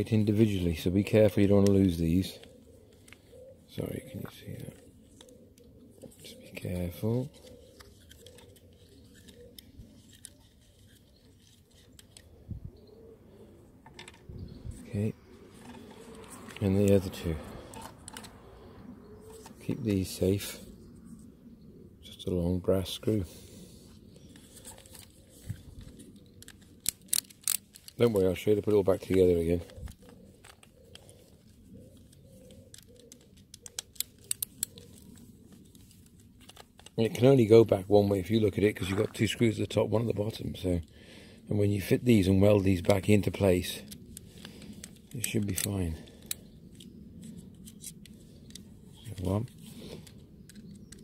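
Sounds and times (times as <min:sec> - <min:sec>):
faint steady background noise: 0:00.0 - 0:51.0
light handling noise: 0:13.8 - 0:18.5, 0:23.9 - 0:40.8, 0:42.0 - 0:51.0.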